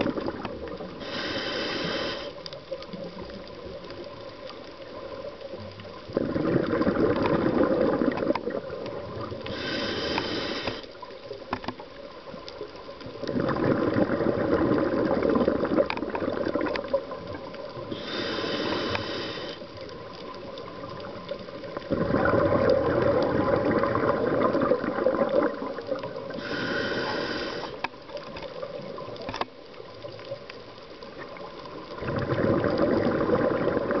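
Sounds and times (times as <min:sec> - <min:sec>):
hissing regulator inhalation: 0:01.0 - 0:02.4, 0:09.4 - 0:11.0, 0:17.9 - 0:19.7, 0:26.4 - 0:27.9
bubbling exhalations underwater: 0:06.1 - 0:09.4, 0:13.3 - 0:16.7, 0:21.9 - 0:26.7, 0:31.9 - 0:34.0.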